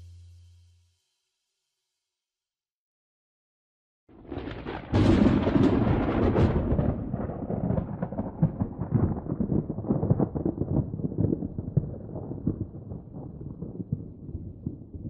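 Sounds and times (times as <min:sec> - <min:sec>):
thunder rumbling and crashing: 0:04.2 - 0:15.0.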